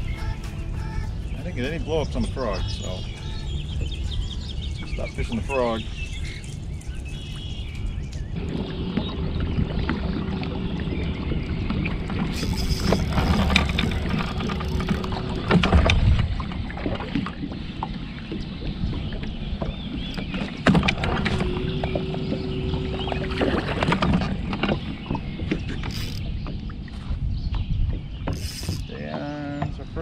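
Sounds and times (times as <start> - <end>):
boat low rumble: 0.0 - 30.0
steady hum: 8.4 - 16.6, 20.8 - 25.1.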